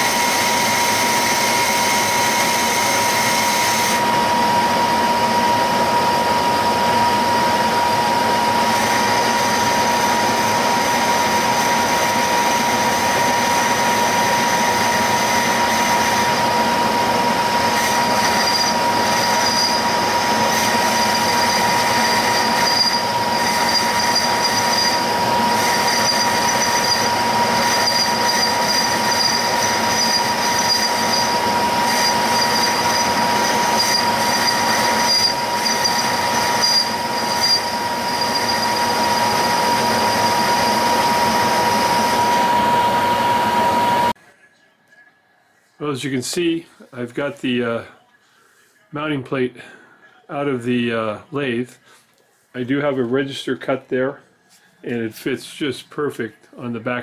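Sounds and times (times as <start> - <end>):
lathe machining with high whine: 0.0 - 44.2
high metallic squeal: 17.4 - 44.1.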